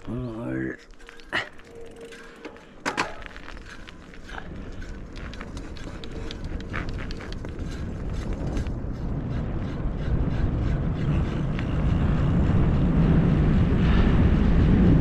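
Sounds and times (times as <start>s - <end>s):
tyres rolling on tarmac: 1.0s - 9.6s
wind over microphone: 3.1s - 15.0s
light ticks: 3.6s - 8.8s.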